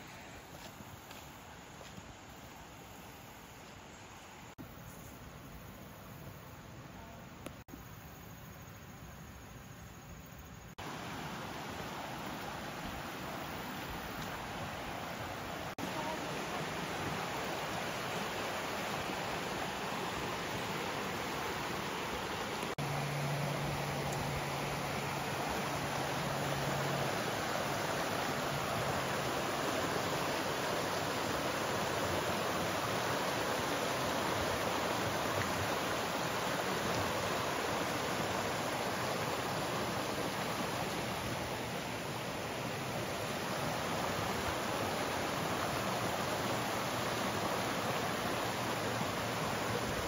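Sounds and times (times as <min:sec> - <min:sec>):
creek rushing over rapids: 0:10.8 - 0:50.0.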